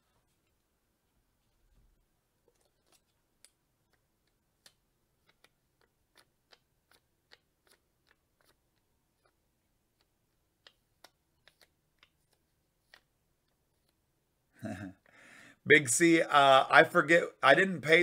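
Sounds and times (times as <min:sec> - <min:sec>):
faint small clicks and taps: 0:01.4 - 0:14.0.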